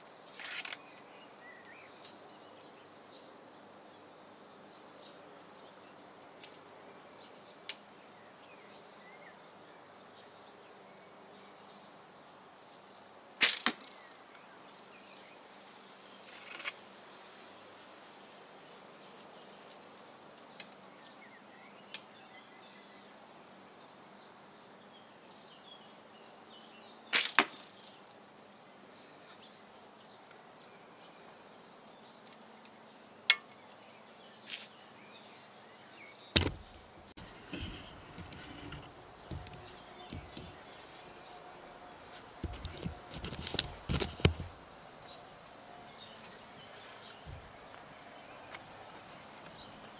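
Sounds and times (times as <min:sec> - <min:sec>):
arrow striking target: 0:36.4 - 0:39.5.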